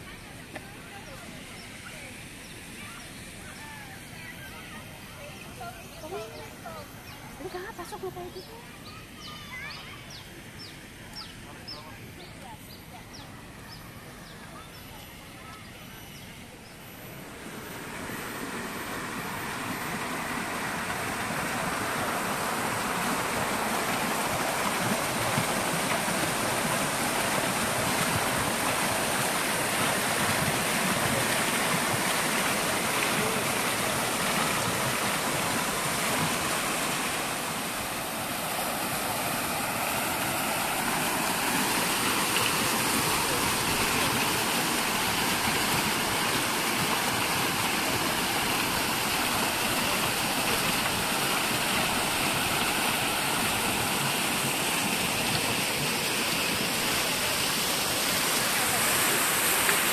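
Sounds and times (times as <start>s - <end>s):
fountain water splashing: 0.0s - 59.9s.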